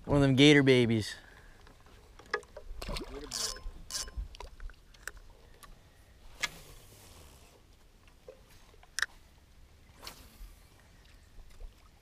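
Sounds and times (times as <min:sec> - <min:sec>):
fishing reel clicks and knocks: 0:03.3 - 0:04.2.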